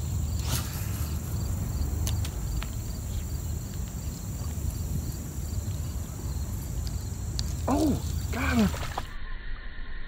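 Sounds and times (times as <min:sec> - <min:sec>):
insect high whine: 0:00.0 - 0:10.0.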